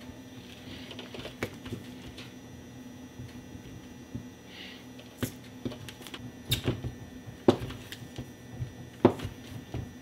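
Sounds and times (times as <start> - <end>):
knife chopping on plastic board: 6.5 - 10.0.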